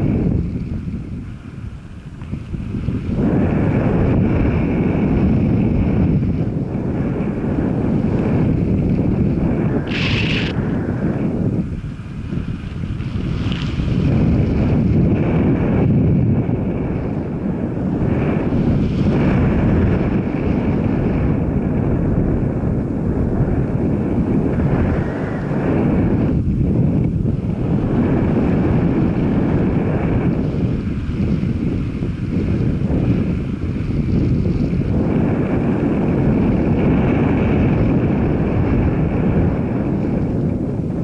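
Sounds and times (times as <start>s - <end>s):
moving vehicle noise: 0.0s - 41.0s
wind buffeting microphone: 0.0s - 41.0s
short high hiss: 9.8s - 10.6s.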